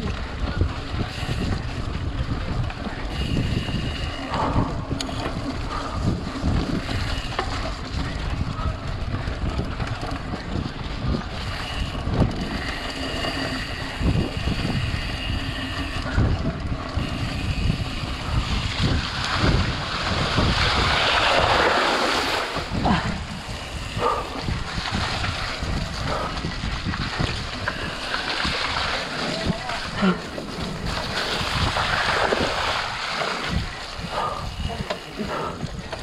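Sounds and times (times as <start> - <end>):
wind buffeting microphone: 0.0 - 36.0
bike knocks and rattles: 4.2 - 36.0
tyres splashing through puddle: 24.5 - 34.0.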